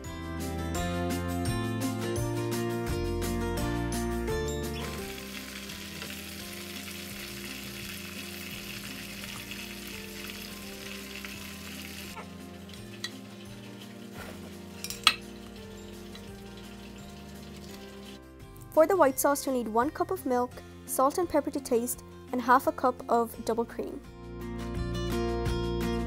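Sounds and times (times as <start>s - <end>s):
chicken sizzling in frying oil: 4.7s - 18.2s.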